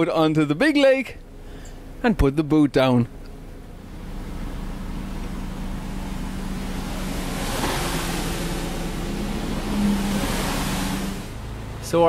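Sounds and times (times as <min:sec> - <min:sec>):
boat diesel engines running: 0:00.0 - 0:12.0
jet ski engine: 0:03.1 - 0:12.0
hiss of water spray: 0:05.7 - 0:11.5.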